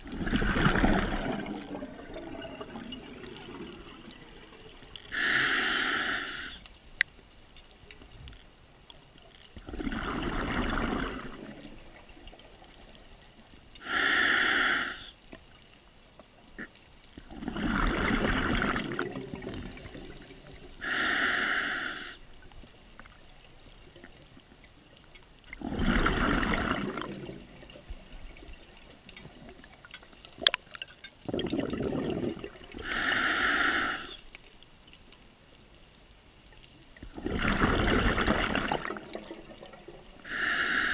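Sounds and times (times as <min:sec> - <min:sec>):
exhaled bubbles burbling: 0:00.0 - 0:04.8, 0:09.6 - 0:12.5, 0:16.6 - 0:20.2, 0:25.5 - 0:28.5, 0:31.2 - 0:33.0, 0:37.0 - 0:40.4
regulator air hiss: 0:05.1 - 0:06.6, 0:13.8 - 0:15.2, 0:19.7 - 0:22.2, 0:32.8 - 0:34.2, 0:40.2 - 0:40.9.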